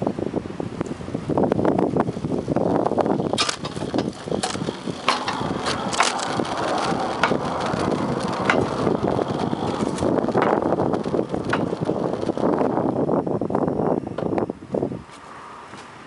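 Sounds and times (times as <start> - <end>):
steel wheels rumbling on rails: 1.3 - 14.4
sharp clicks and clanks: 3.0 - 13.0.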